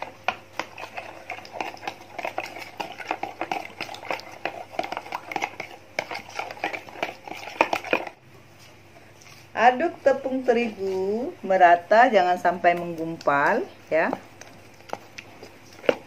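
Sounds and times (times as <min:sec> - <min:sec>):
spoon beating egg in plastic bowl: 0:00.0 - 0:08.2, 0:09.2 - 0:16.0.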